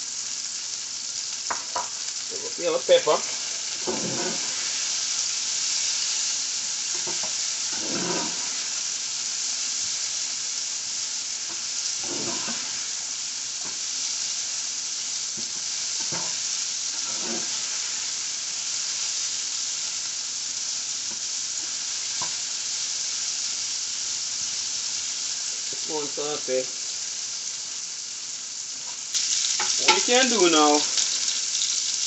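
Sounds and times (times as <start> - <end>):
vegetables sizzling in oil: 0.0 - 32.0
spatula scraping a pan: 3.7 - 4.8, 6.9 - 8.7, 12.0 - 12.8, 16.0 - 17.8, 29.2 - 32.0.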